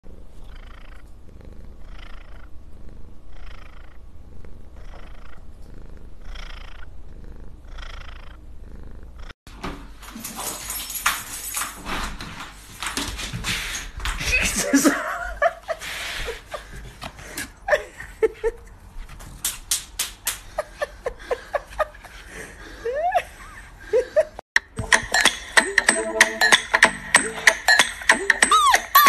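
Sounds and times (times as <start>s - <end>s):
cat purring: 0.1s - 9.4s.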